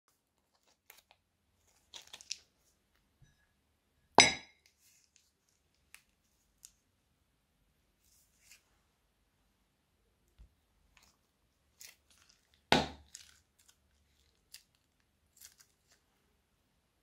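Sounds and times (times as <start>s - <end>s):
plastic bag crinkling: 0.5s - 2.5s, 11.0s - 16.0s
clink against glass bowl: 4.2s - 4.5s.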